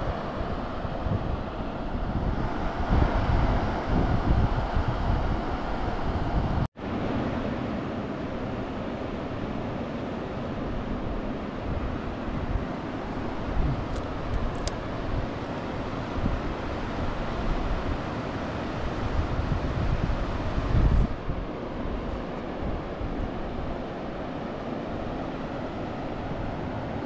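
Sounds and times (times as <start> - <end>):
wind gusting on microphone: 0.0 - 27.0.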